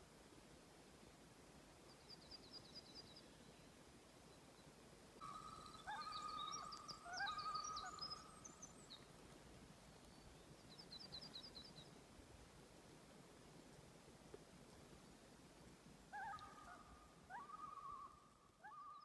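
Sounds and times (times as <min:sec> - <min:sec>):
birdsong with wavering whistle: 0:05.2 - 0:09.1, 0:16.1 - 0:19.0.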